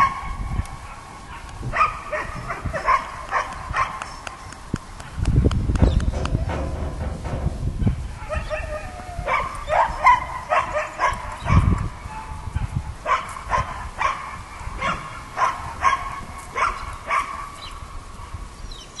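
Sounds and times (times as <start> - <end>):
dog barking and yipping: 0.0 - 4.2, 7.8 - 17.7
low rumbling noise: 0.0 - 13.1.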